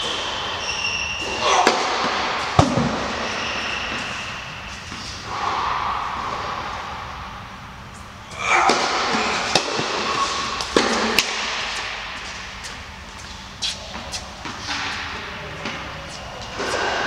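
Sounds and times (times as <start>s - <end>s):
tennis ball hit by rackets: 8.7s - 12.1s.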